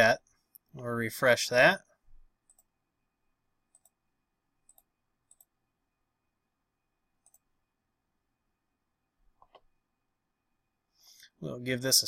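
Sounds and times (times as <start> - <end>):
faint computer mouse clicks: 3.7 - 4.0, 4.7 - 5.5, 7.2 - 7.5, 9.4 - 9.7.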